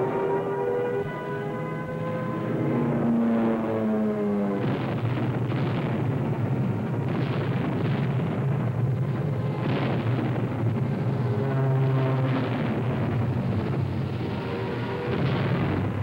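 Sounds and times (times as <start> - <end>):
truck engine rumble: 0.0 - 16.0
bombs exploding: 4.6 - 10.9.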